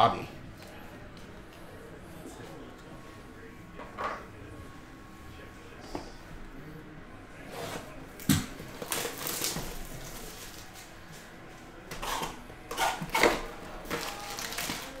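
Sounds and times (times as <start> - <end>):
plastic wrap crinkling: 8.7 - 10.9, 13.9 - 15.0.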